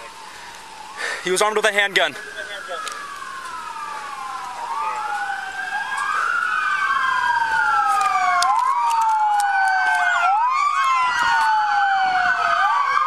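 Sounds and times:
police sirens wailing: 0.0s - 13.0s.

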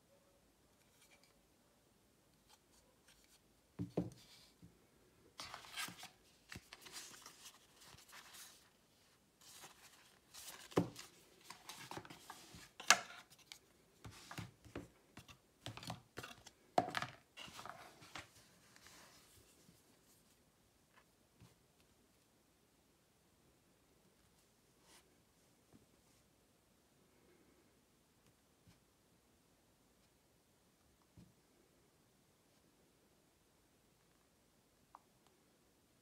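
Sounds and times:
paper packaging rustling: 5.4s - 8.8s.

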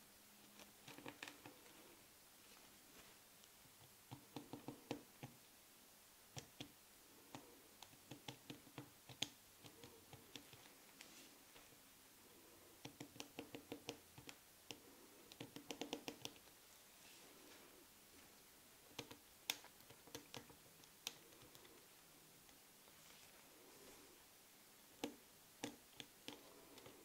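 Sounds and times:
pen clicking and tapping on leather: 0.8s - 1.6s, 3.8s - 5.4s, 7.4s - 10.7s, 12.8s - 16.5s, 25.0s - 27.0s.

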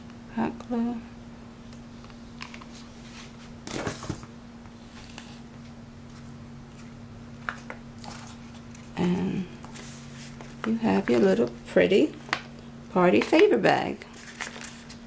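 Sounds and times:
steady low hum: 0.0s - 15.0s
paper rustle: 6.1s - 11.5s, 14.1s - 15.0s.

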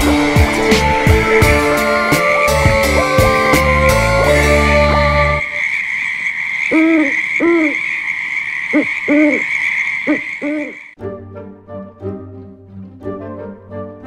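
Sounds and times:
owl hoots: 5.4s - 11.0s
light background music: 11.0s - 14.0s.

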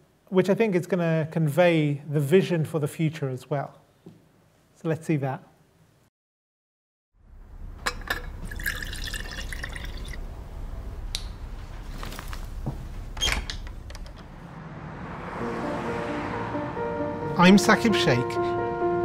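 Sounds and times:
low steady hum: 7.2s - 14.3s.

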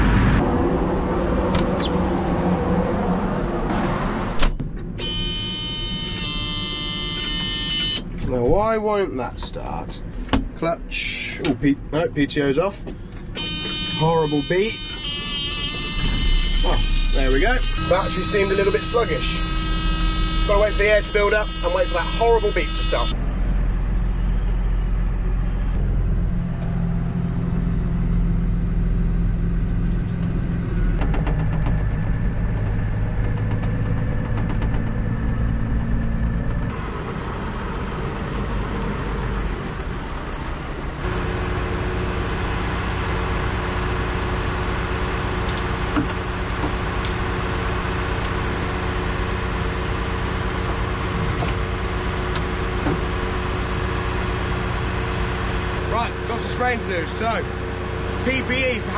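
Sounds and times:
tractor engine idling: 27.4s - 58.9s.

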